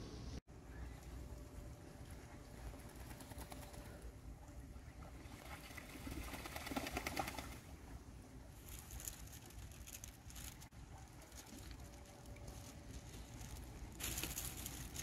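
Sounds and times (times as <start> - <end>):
ducks splashing in water: 4.8 - 7.8.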